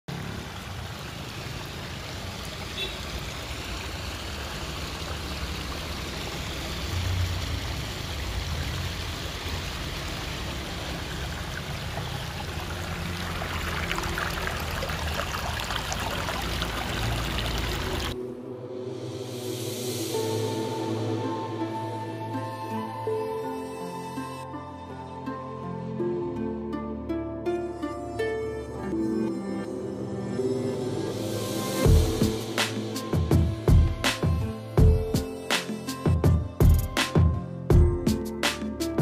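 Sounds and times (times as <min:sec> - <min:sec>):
waterfall splashing over stones: 0:00.1 - 0:18.2
music: 0:18.1 - 0:39.0.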